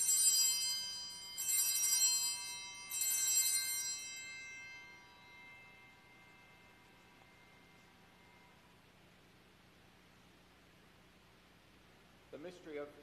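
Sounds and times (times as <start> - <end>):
altar bells jingling: 0.0 - 9.2.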